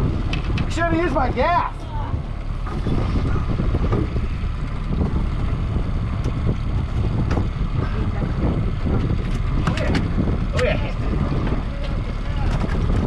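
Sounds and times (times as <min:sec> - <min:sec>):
low rumble of boat and water: 0:00.0 - 0:13.0
wind buffeting microphone: 0:00.0 - 0:13.0.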